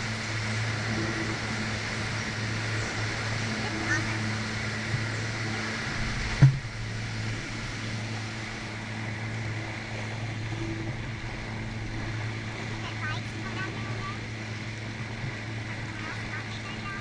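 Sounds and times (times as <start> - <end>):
jet ski engine running: 0.0 - 17.0
sharp thump: 6.3 - 6.7.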